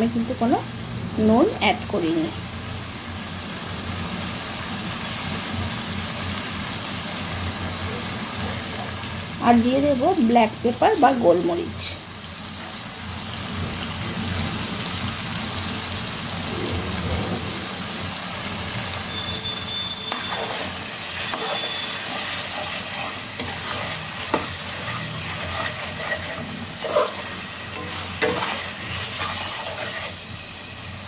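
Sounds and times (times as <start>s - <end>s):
masala sizzling in oil: 0.0s - 31.0s
spatula scraping pan: 20.0s - 30.5s.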